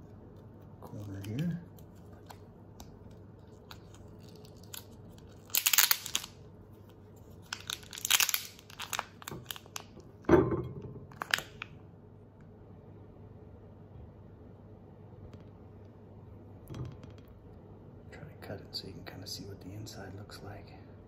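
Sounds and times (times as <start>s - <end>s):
plastic film crinkling and tearing: 0.8s - 10.1s, 11.1s - 11.7s.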